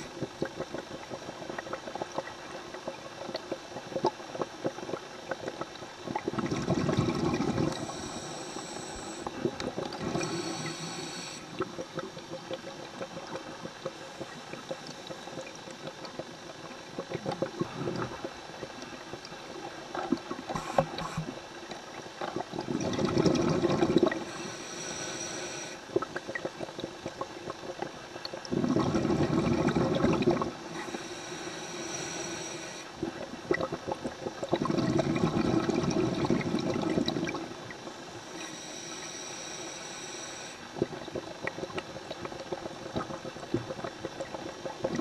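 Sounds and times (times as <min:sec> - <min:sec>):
crackle of small clicks: 0:00.0 - 0:07.9, 0:09.2 - 0:10.7, 0:11.4 - 0:22.7, 0:25.8 - 0:28.6, 0:40.7 - 0:45.0
exhaled bubbles gushing underwater: 0:00.0 - 0:24.6, 0:25.5 - 0:31.2, 0:32.9 - 0:38.5, 0:40.6 - 0:45.0.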